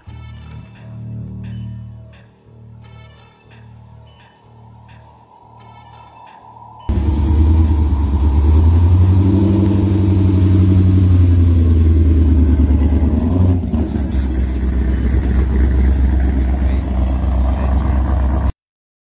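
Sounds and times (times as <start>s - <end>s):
car exhaust pulling away: 6.9s - 18.5s
second car lower exhaust note: 6.9s - 18.5s.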